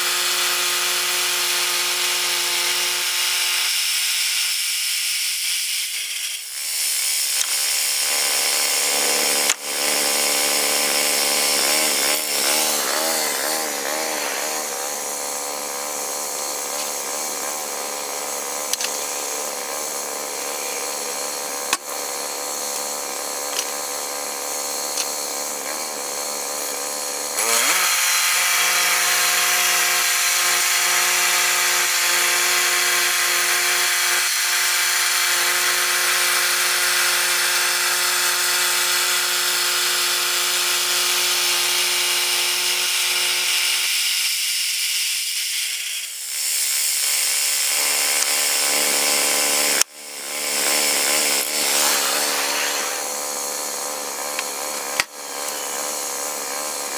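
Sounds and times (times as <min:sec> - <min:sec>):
gas engine revving and idling: 0:07.3 - 0:27.9.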